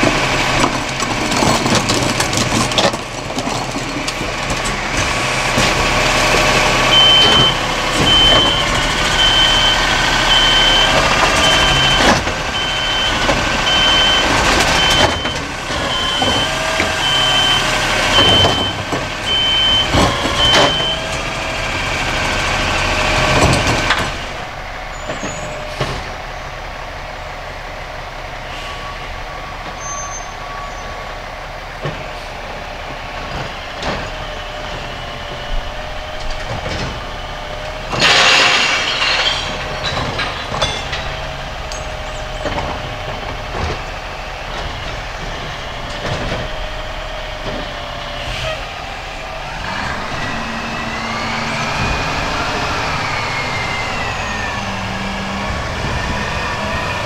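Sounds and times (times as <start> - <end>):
diesel truck engine running: 0.0 - 57.0
hydraulics whining: 0.0 - 57.0
backup alarm beeping: 6.9 - 21.1
loud metal clanks: 37.8 - 47.8.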